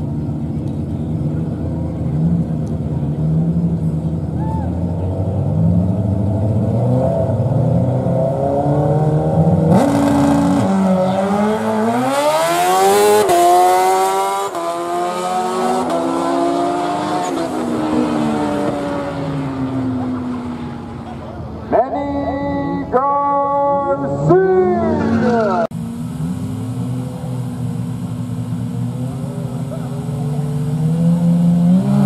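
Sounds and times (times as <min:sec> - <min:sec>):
car engine revving: 0:00.0 - 0:21.8, 0:24.0 - 0:32.0
motorcycle engine revving: 0:24.8 - 0:32.0.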